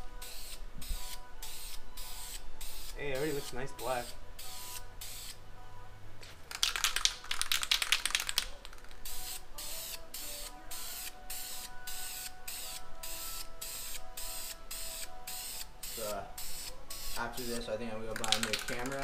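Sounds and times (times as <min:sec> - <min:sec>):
spray can hissing in bursts: 0:00.0 - 0:05.4, 0:06.5 - 0:19.0
rapid clicking and crackling: 0:18.1 - 0:19.0.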